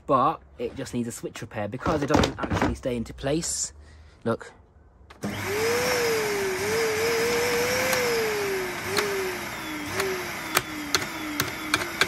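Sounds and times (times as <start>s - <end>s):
vacuum cleaner motor whining: 5.1s - 12.0s
rocker switch clicks: 8.9s - 9.2s, 9.9s - 12.0s.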